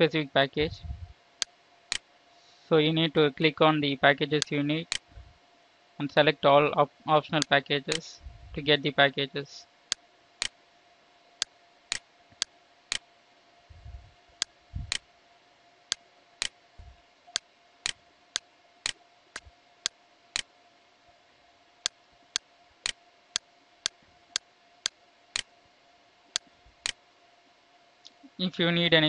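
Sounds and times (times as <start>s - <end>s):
soft low thumps: 0.6s - 1.2s, 5.1s - 5.4s, 8.2s - 8.6s, 13.7s - 15.0s, 16.8s - 17.0s.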